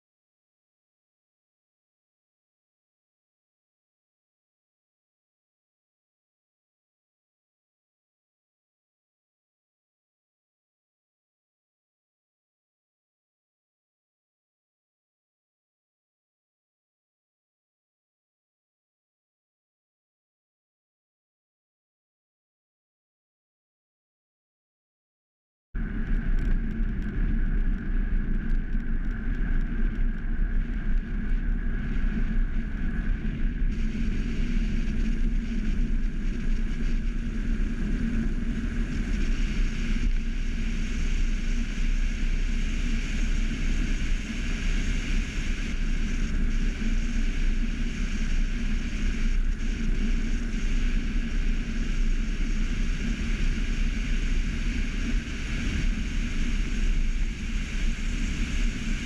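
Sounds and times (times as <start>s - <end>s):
rushing wind: 25.8s - 59.0s.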